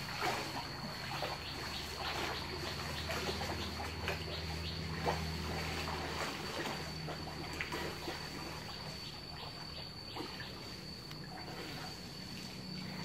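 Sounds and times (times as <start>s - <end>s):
pool water splashing: 0.0s - 13.0s.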